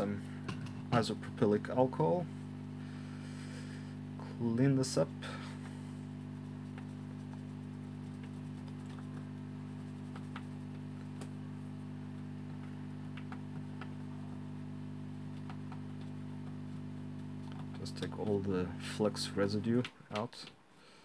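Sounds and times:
steady low hum: 0.0 - 20.0
cotton swab scrubbing ticks: 6.2 - 11.4.

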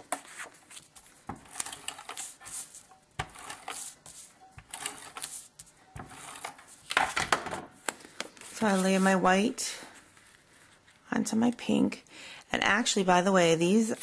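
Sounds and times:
tape runner rasping across card: 1.3 - 7.2.

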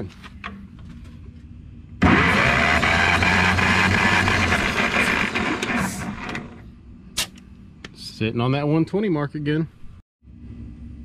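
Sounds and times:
engine cranking by starter motor: 2.0 - 6.6.

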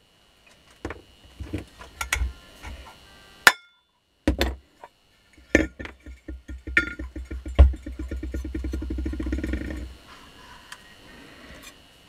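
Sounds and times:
sharp ringing clink: 3.5 - 3.9.

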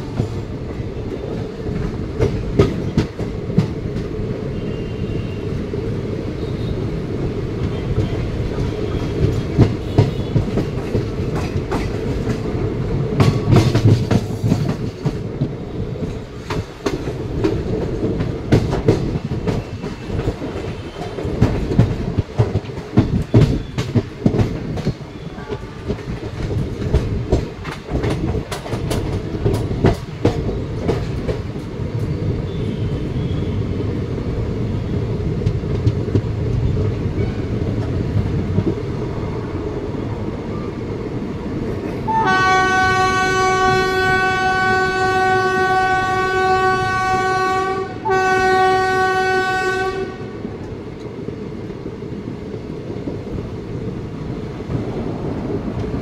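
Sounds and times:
train rumbling on rails: 0.0 - 56.0
wheels clacking over rail joints: 7.6 - 33.4.

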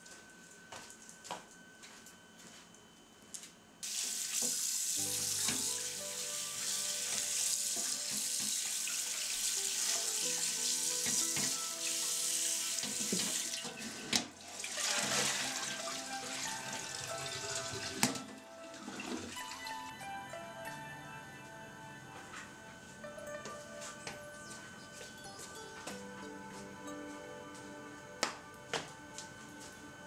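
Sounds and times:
tap water running into a basin: 3.8 - 19.7.

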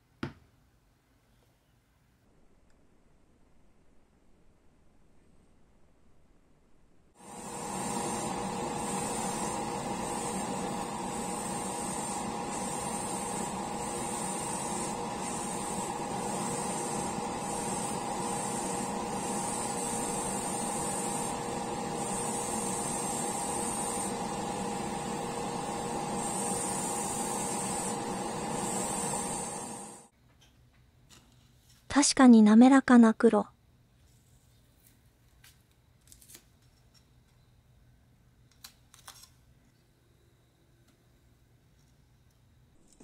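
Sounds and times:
airbrush hissing: 7.2 - 30.1
motor hum: 7.2 - 30.1.

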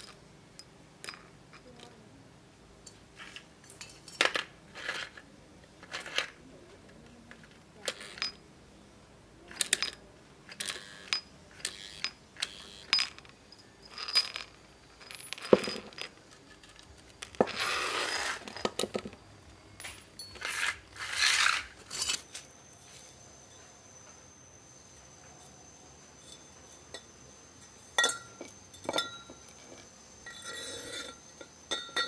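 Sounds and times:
metal bolts clinking on concrete: 0.0 - 2.0, 2.8 - 6.4, 7.3 - 8.4, 9.5 - 24.2, 24.9 - 32.0
metal scraping on concrete: 14.0 - 19.2, 19.8 - 23.8, 25.2 - 32.0.

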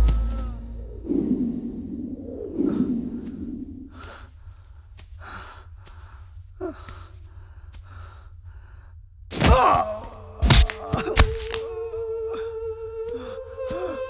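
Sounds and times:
man groaning: 9.4 - 11.8.

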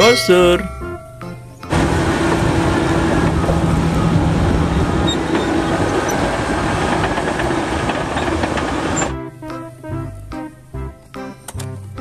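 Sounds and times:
bulldozer diesel engine drone: 1.6 - 9.3
steel tracks clattering: 1.7 - 9.2.

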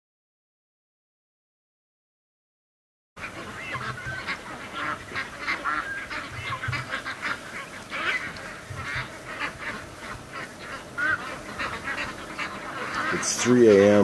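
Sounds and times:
ducks quacking: 3.2 - 14.0.

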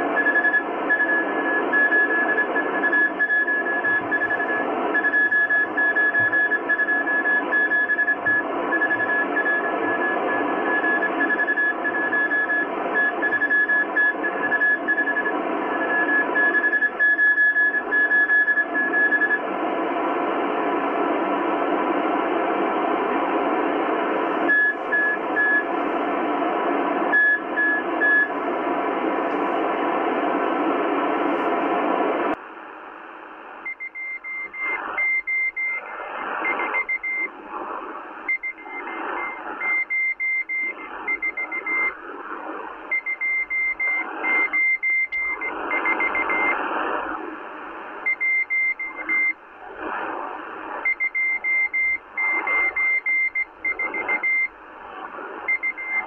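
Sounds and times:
radio static hiss: 0.0 - 56.0
morse code beeps: 0.2 - 19.4, 24.4 - 25.7, 27.1 - 28.3, 33.6 - 37.3, 38.2 - 42.0, 42.9 - 46.6, 48.0 - 49.4, 50.8 - 54.6, 55.4 - 56.0.

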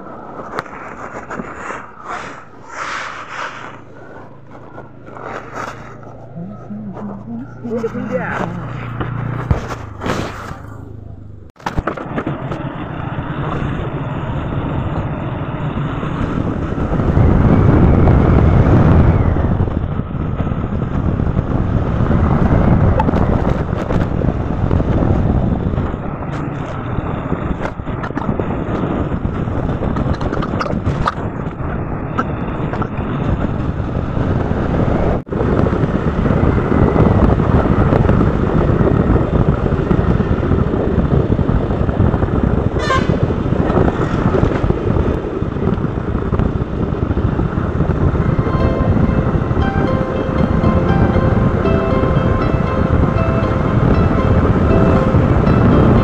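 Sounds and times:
low rumble: 0.0 - 11.7, 12.3 - 56.0
road and wind noise from vehicle: 0.0 - 56.0.

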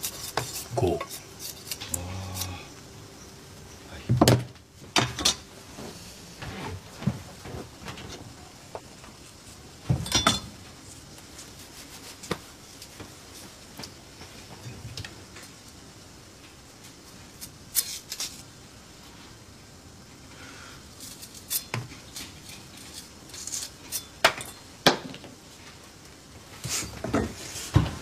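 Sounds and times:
small kitchen clicks and clatters: 4.1 - 5.5, 6.7 - 11.5, 12.2 - 15.8, 21.0 - 28.0.

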